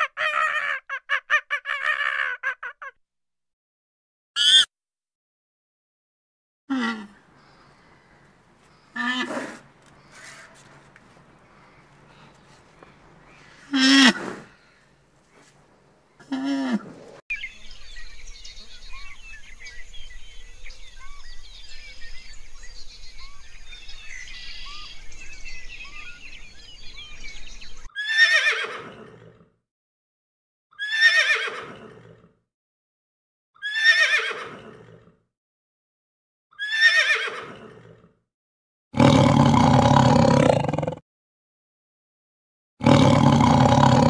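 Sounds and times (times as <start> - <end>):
birds chirping: 7.1 - 27.9
tiger roaring: 9.0 - 9.7, 39.0 - 41.0, 42.8 - 44.0
pony whinnying: 28.0 - 29.0, 30.8 - 31.7, 33.6 - 34.7, 36.6 - 37.6.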